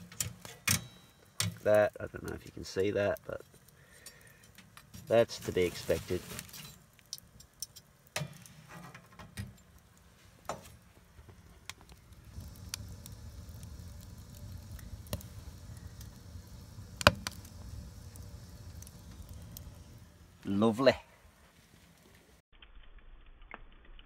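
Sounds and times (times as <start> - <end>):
wood fire crackling and popping: 0.0 - 24.0
low steady rumble: 11.1 - 20.5.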